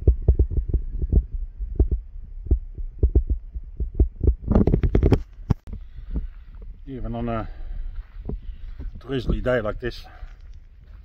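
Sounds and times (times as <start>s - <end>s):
crackling and rustling: 4.4s - 6.7s
footsteps on wet dirt track: 7.5s - 11.0s.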